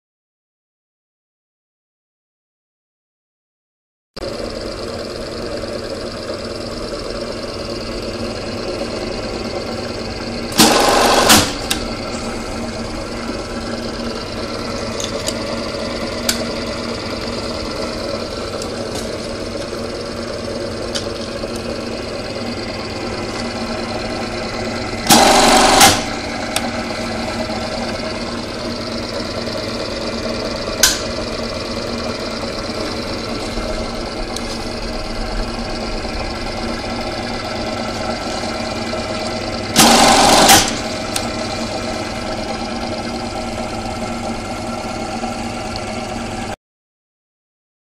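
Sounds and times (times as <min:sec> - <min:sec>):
machine stitching cycle: 0:04.2 - 0:46.6
sewing machine humming: 0:04.2 - 0:46.6
sharp click: 0:30.8 - 0:31.1.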